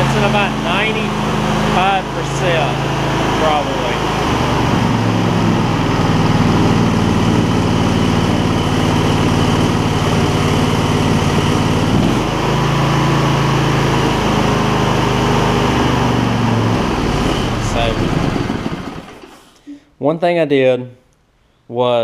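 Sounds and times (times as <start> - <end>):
tractor engine running: 0.0 - 19.6.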